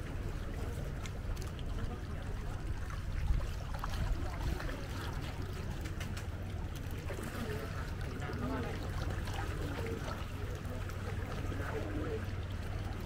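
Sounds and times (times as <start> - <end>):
wind rumble on microphone: 0.0 - 6.7
river water lapping: 0.0 - 13.0.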